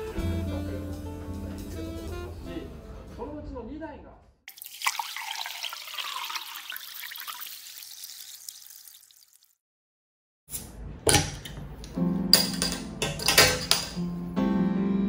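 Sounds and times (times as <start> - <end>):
background piano music: 0.0 - 3.4, 11.6 - 15.0
glass bottle clinking on table: 12.4 - 14.0.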